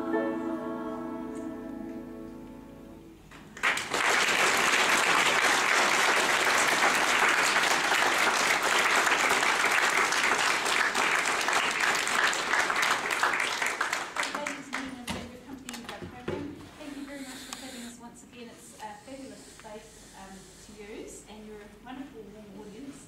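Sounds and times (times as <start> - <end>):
song ending: 0.0 - 3.2
audience applause: 3.6 - 14.9.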